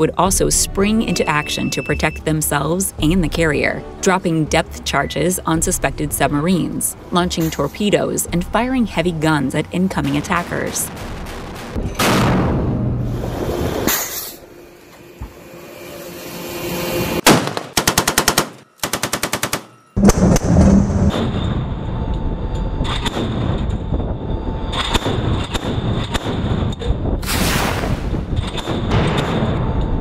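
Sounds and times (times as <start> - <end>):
loud blast: 10.4 - 14.1, 20.0 - 21.8, 27.2 - 29.6
rushing noise with sharp cracks: 10.5 - 14.0
automatic gunfire: 17.3 - 19.7.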